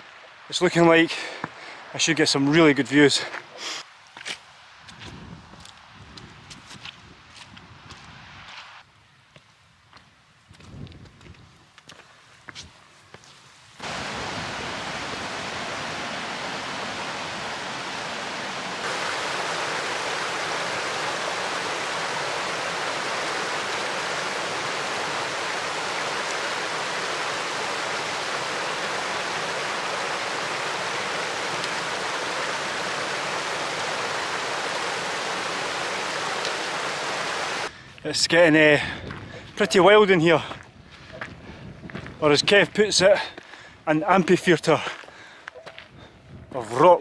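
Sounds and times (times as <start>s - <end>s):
stream rushing over rocks: 0.0s - 3.6s, 13.8s - 37.7s.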